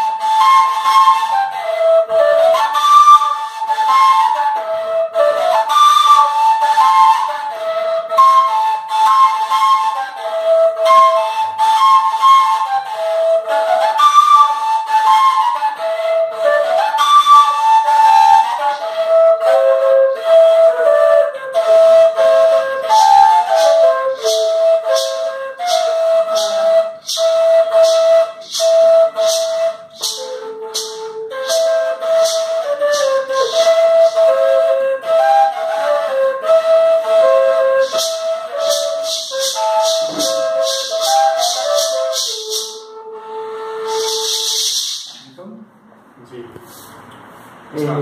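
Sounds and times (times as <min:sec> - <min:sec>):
cane flutes playing melody: 0:00.0 - 0:45.6
maraca shaking: 0:22.8 - 0:34.4, 0:37.7 - 0:42.9, 0:43.9 - 0:45.3.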